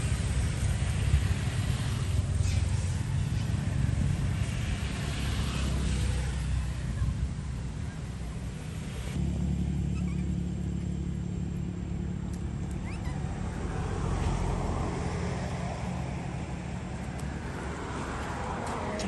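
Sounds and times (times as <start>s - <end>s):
baby monkeys squeaking: 9.9s - 10.4s, 12.7s - 13.4s.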